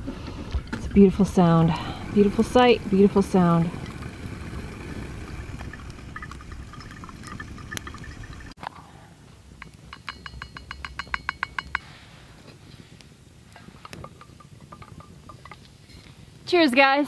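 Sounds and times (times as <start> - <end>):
light metal clinks: 9.8 - 12.0.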